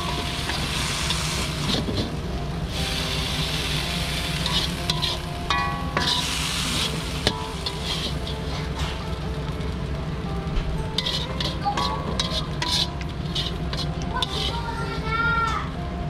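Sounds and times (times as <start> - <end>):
metal spatula scraping a wok: 0.0 - 5.3, 5.9 - 9.0, 10.9 - 14.8
oil sizzling: 0.0 - 16.0.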